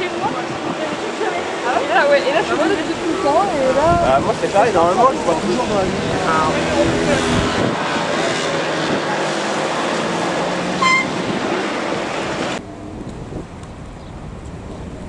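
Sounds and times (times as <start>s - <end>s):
murmur of voices: 0.0s - 11.6s
wind noise: 0.0s - 15.0s.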